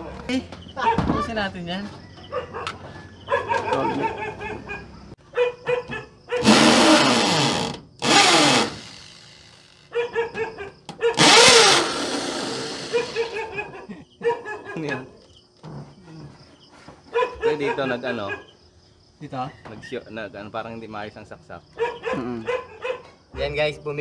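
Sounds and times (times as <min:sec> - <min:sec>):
dog barking: 0:02.2 - 0:06.7, 0:09.9 - 0:11.3, 0:12.9 - 0:15.2, 0:17.1 - 0:18.6, 0:21.8 - 0:23.2
electric drill drilling into wall: 0:06.4 - 0:09.7, 0:11.2 - 0:13.4.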